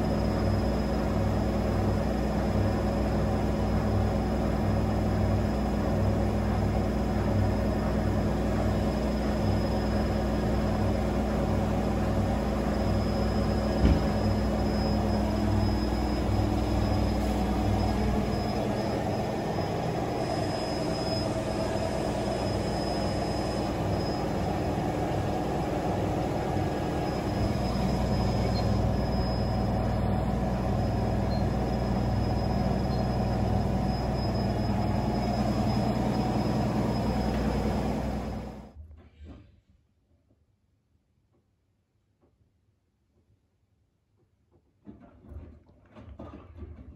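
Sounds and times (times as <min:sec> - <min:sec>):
washing machine spinning: 0:00.0 - 0:38.8
drum low pulsing rumble: 0:14.0 - 0:38.4.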